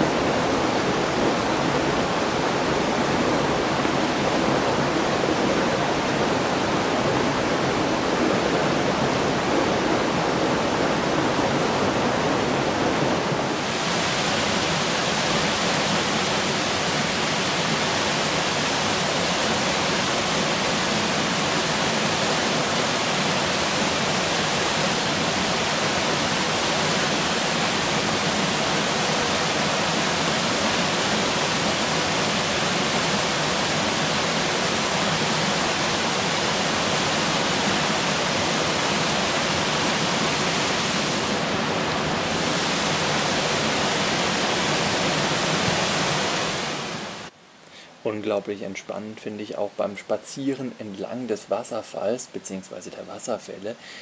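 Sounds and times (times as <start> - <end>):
waterfall splashing into pool: 13.6 - 47.3.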